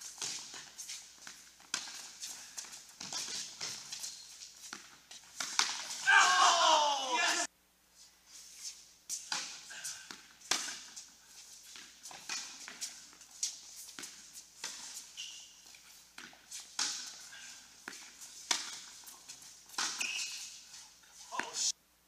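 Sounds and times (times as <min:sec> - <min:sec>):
tennis ball hitting rackets: 0:00.2 - 0:04.0, 0:04.7 - 0:07.4, 0:09.2 - 0:11.1, 0:11.7 - 0:13.3, 0:16.2 - 0:20.4
shoe squeak: 0:02.3 - 0:04.7, 0:15.0 - 0:15.7, 0:19.8 - 0:20.7
tennis ball bouncing on hard court: 0:04.7 - 0:06.0, 0:09.3 - 0:11.0, 0:17.8 - 0:19.0, 0:19.7 - 0:20.4.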